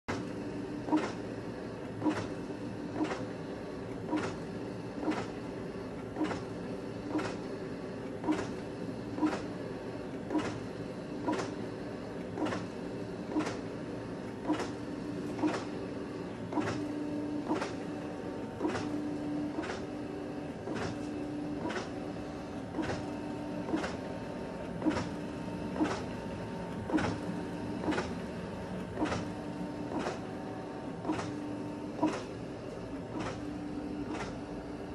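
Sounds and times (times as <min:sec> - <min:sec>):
printer sharp clicks: 0:00.1 - 0:01.3, 0:01.9 - 0:34.9
printer humming: 0:00.1 - 0:34.9.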